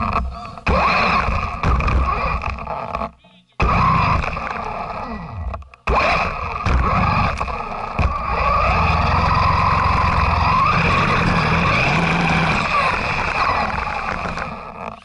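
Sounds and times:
knocks over bumps: 0.0s - 4.8s, 5.4s - 15.0s
toy truck motor whine: 0.0s - 15.0s
tyres rumbling over snow: 3.6s - 15.0s.

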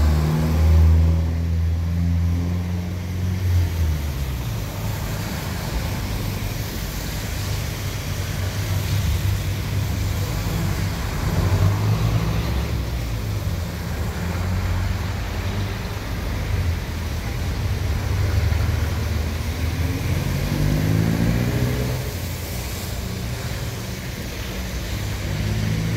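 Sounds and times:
engine revving up: 0.0s - 6.1s, 18.0s - 22.5s
diesel engines rumbling past: 0.0s - 25.9s
tyres on wet road: 0.0s - 25.9s.

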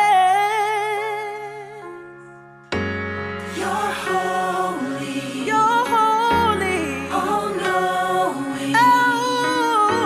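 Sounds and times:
voices singing held notes: 3.4s - 10.0s.

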